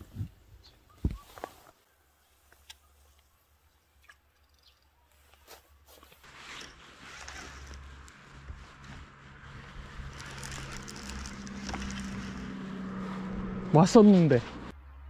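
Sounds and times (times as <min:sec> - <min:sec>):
wind noise on microphone: 0:00.0 - 0:00.4.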